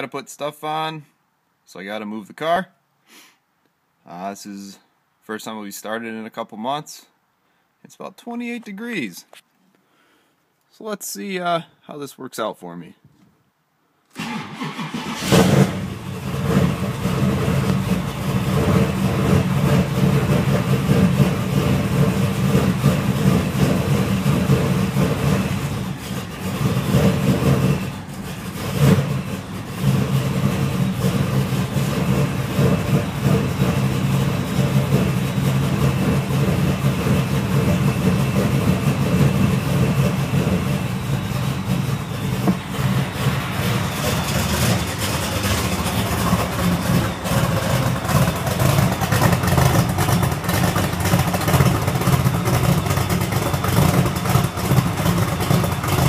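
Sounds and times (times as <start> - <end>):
engine cranking: 14.1 - 56.0
engine running: 14.2 - 56.0.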